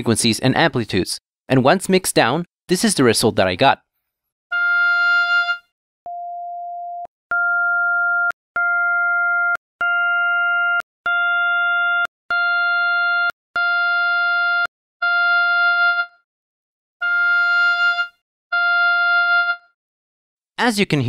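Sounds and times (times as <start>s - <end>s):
synthesized oboe tones: 4.5s - 16.2s, 17.0s - 19.8s.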